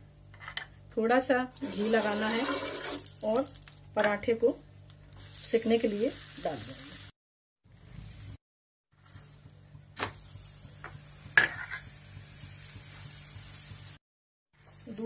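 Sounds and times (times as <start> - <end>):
flatbread sizzling in pan: 5.1 - 14.0.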